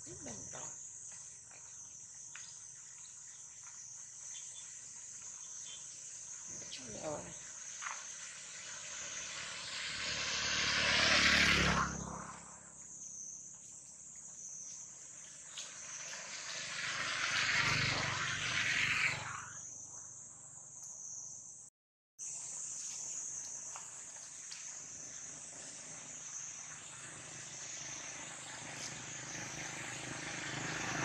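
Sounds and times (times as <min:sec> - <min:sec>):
high-pitched insect chorus: 0:00.0 - 0:31.0
vehicles passing by: 0:06.9 - 0:13.2, 0:15.1 - 0:19.6, 0:25.2 - 0:31.0.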